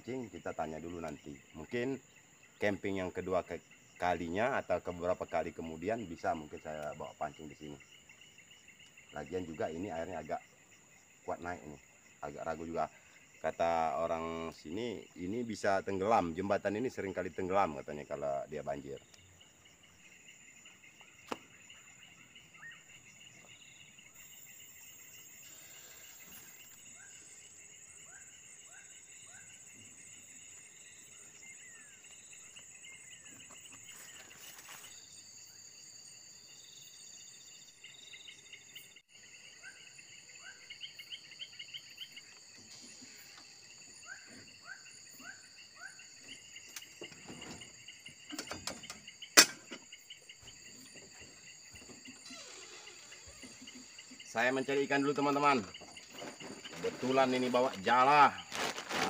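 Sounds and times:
insects chirring: 0:00.0 - 0:59.0.

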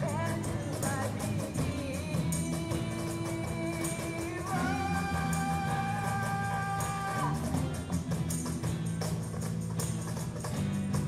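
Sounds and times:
cajon beat: 0:00.0 - 0:11.0
jingling percussion: 0:00.0 - 0:11.0
strummed acoustic guitars: 0:00.0 - 0:11.0.

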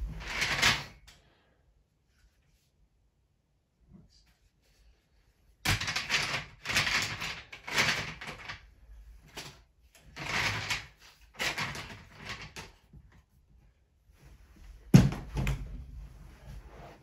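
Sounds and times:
plastic train track pieces clattering: 0:00.2 - 0:01.0, 0:05.7 - 0:08.6, 0:09.3 - 0:12.8.

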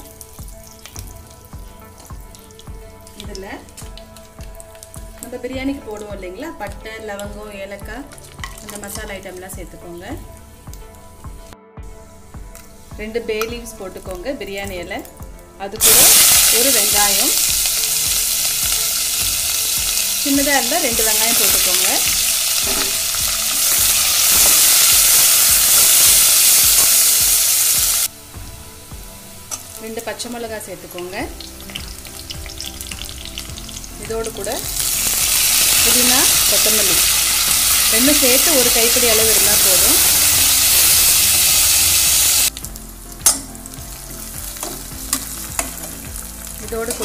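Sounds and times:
onions sizzling in hot oil: 0:00.0 - 0:11.0, 0:15.8 - 0:47.0.

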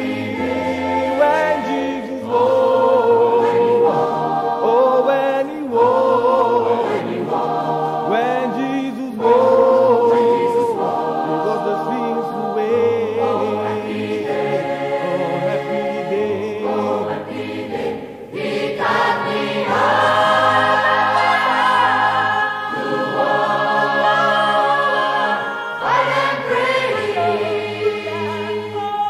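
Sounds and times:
choir singing held chords: 0:00.0 - 0:29.0.

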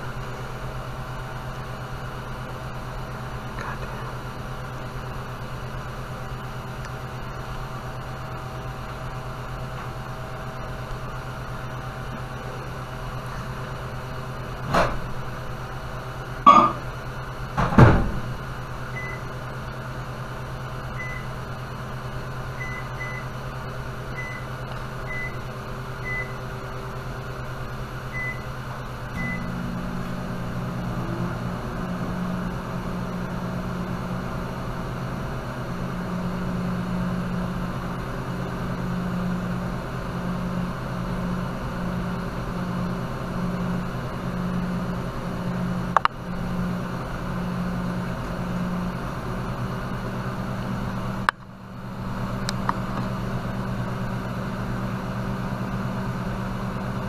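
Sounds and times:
electrical appliance hum: 0:00.0 - 0:57.0
short electronic beeps: 0:16.5 - 0:16.8.

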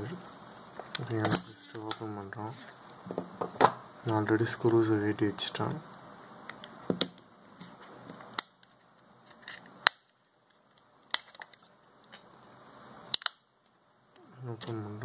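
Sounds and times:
plastic clips clicking and snapping: 0:13.1 - 0:13.4.

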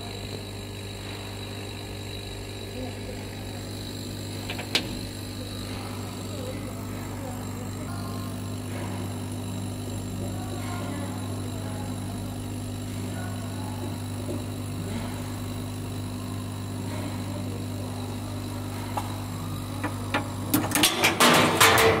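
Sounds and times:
machine hum: 0:00.0 - 0:22.0
sharp clicks and knocks: 0:04.4 - 0:05.1.

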